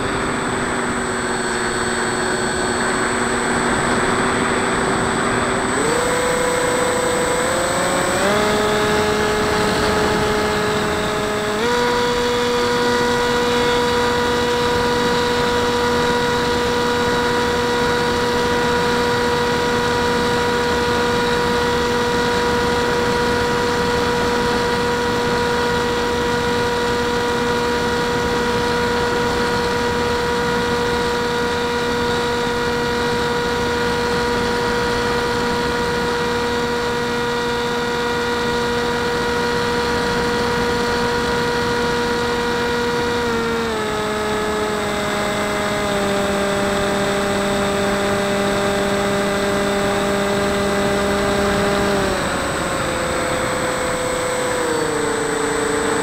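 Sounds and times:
electric motor whine: 0.0s - 56.0s.

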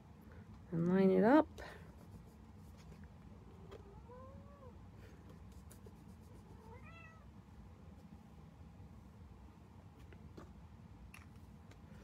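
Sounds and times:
cat meowing: 6.7s - 7.3s.

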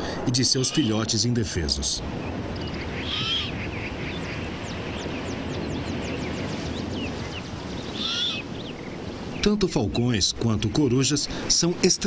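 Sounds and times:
outdoor background noise: 0.0s - 12.0s
small bird chirping: 2.1s - 9.5s
owl chick rasping call: 2.6s - 4.4s, 7.9s - 8.7s.

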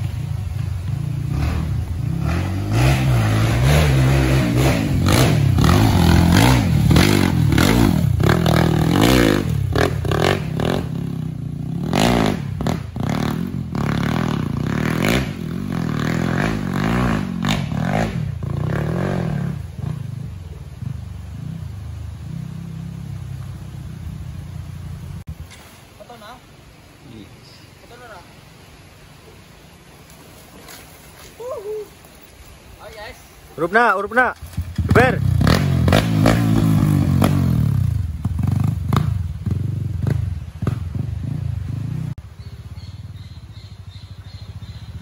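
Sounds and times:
dirt bike engine revving: 0.0s - 25.2s, 34.6s - 42.2s.

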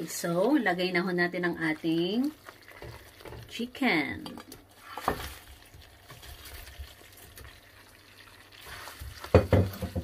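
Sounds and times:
sauce simmering: 0.1s - 10.0s
spatula stirring and knocking pan: 1.9s - 3.6s, 4.2s - 7.6s, 8.6s - 10.0s.

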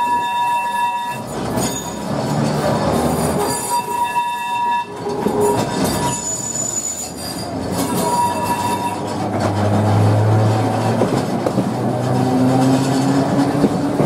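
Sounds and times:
high wheel squeals: 0.0s - 9.4s
tram wheels rumbling on rails: 0.0s - 14.0s.

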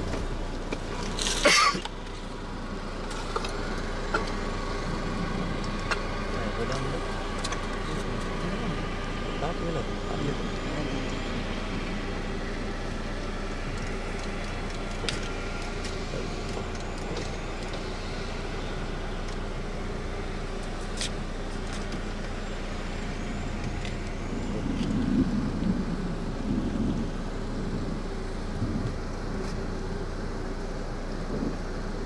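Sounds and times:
vehicle engine idling: 0.0s - 32.0s.

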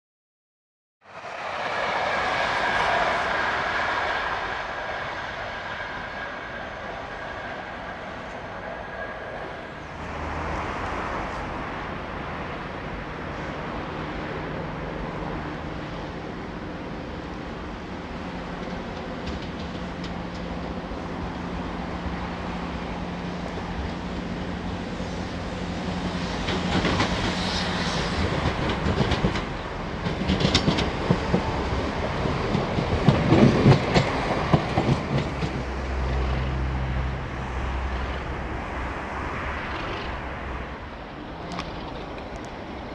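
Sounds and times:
diesel locomotive engines running: 1.0s - 42.9s
diesel train engine hum: 1.0s - 42.9s
train wheels clattering over rails: 18.3s - 20.8s, 25.8s - 36.8s.

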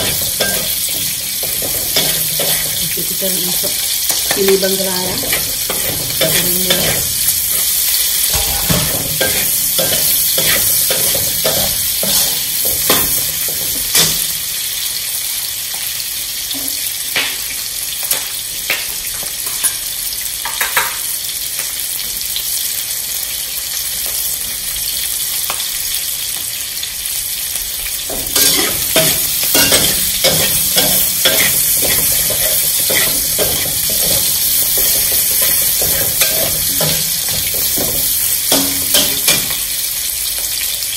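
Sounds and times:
metal spatula scraping wok: 0.0s - 14.2s, 28.3s - 39.6s
vegetables sizzling in oil: 0.0s - 40.9s.

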